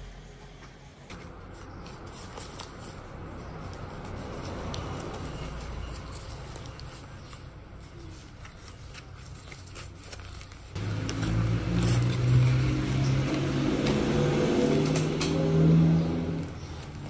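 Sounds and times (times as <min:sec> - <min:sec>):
thin fabric crinkling and rustling: 0:03.7 - 0:12.3.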